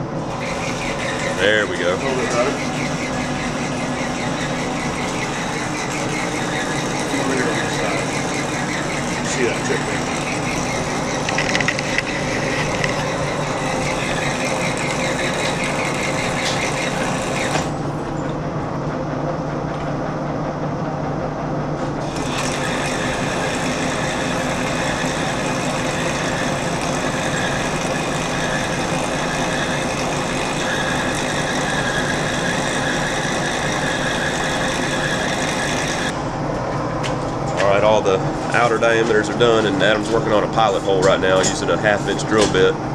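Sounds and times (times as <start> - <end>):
lathe tool cutting steel: 0.0 - 18.0, 22.0 - 36.2
lathe running: 0.0 - 42.9.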